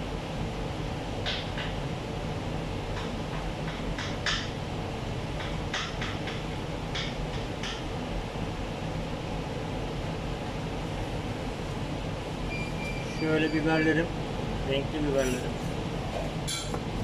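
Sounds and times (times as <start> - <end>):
ventilation fan humming: 0.0 - 17.0.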